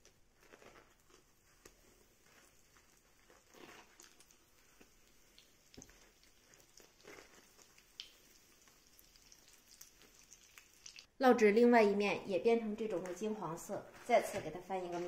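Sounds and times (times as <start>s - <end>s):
oil sizzling: 1.2s - 11.2s.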